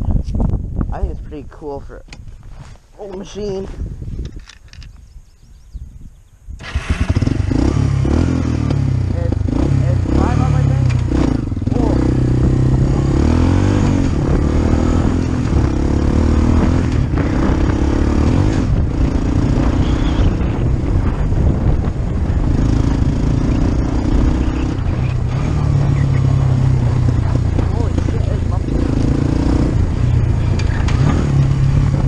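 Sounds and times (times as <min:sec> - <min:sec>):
quad bike engine revving: 0:06.6 - 0:32.0.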